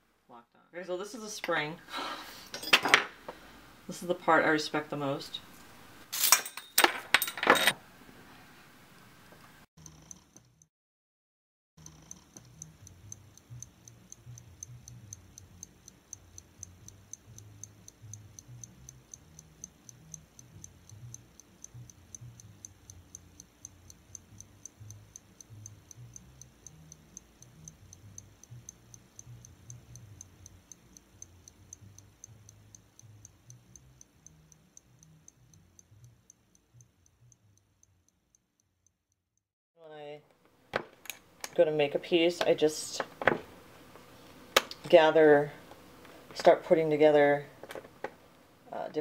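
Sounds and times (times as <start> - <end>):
mechanical clock ticking: 9.8 - 10.7, 11.8 - 39.2.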